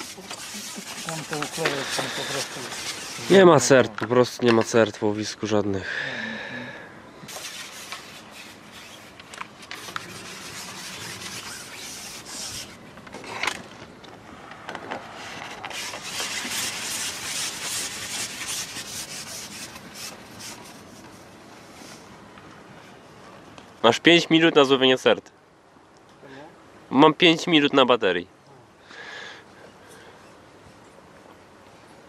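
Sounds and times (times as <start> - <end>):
fishing tackle rubbing and scraping: 0.0 - 4.1, 7.3 - 13.9, 14.8 - 22.1.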